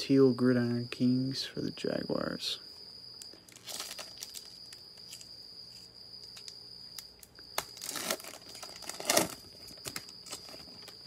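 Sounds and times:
cricket chirping: 0.0s - 11.0s
foil pack crinkling: 3.2s - 5.3s, 6.2s - 11.0s.

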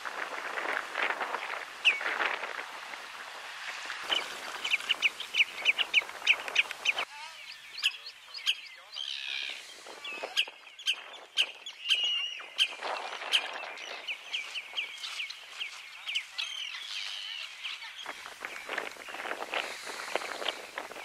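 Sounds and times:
wild birds calling shrilly: 1.3s - 2.4s, 4.0s - 21.0s.

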